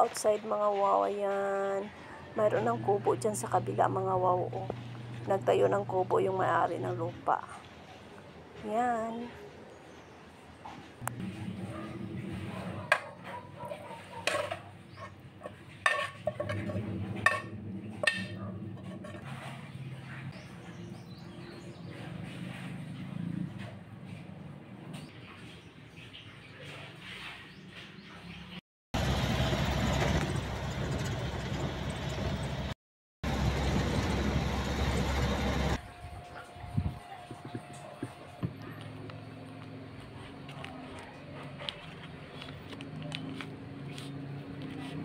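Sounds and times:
vehicle road and engine noise: 10.6 - 25.3, 29.0 - 35.8, 37.4 - 45.0.

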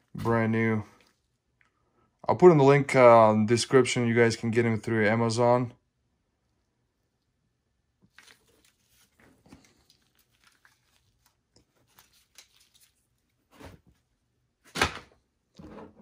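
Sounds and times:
faint rustling and scuffs: 8.1 - 14.1.

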